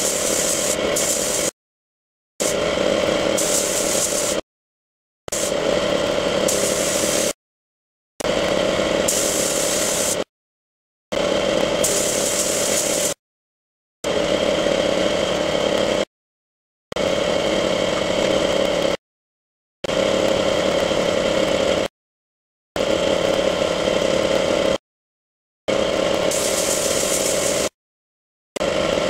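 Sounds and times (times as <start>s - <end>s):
high hiss of air: 0.0s - 1.5s, 3.4s - 4.4s, 6.5s - 7.4s, 9.1s - 10.2s, 11.8s - 13.2s, 26.3s - 27.7s
machine hum: 0.0s - 1.5s, 2.4s - 4.4s, 5.3s - 7.4s.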